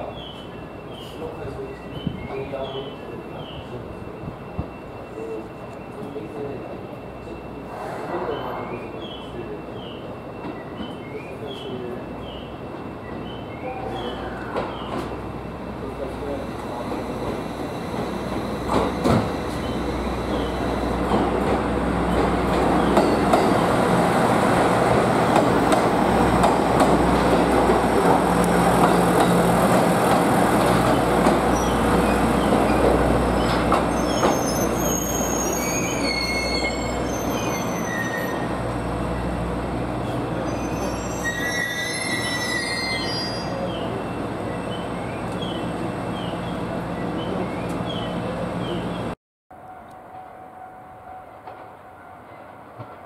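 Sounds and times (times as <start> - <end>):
railcar engine hum: 0.0 - 53.0
wheels squealing on rails: 0.2 - 24.0, 30.6 - 39.3, 40.0 - 49.1.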